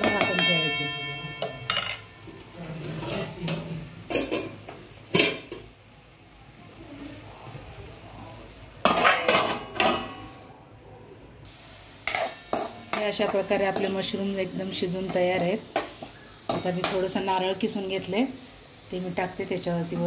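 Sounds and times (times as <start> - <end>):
spoon scraping a metal pan: 0.0 - 4.5, 12.0 - 14.2.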